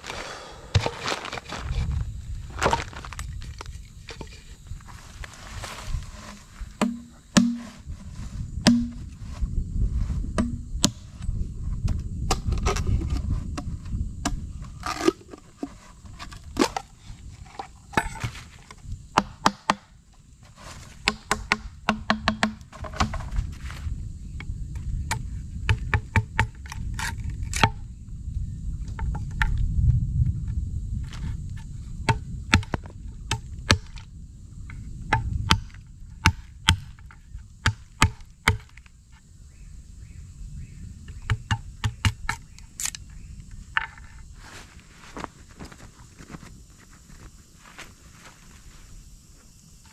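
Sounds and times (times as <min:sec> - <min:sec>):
knife chopping and shaving wood: 0:05.7 - 0:08.0, 0:08.6 - 0:09.1, 0:35.2 - 0:38.8, 0:41.2 - 0:42.4.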